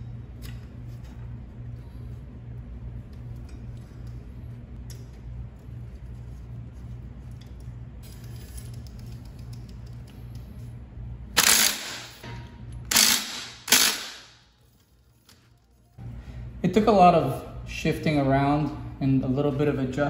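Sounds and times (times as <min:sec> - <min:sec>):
cordless power driver bursts: 0:11.4 - 0:12.1, 0:12.9 - 0:14.2.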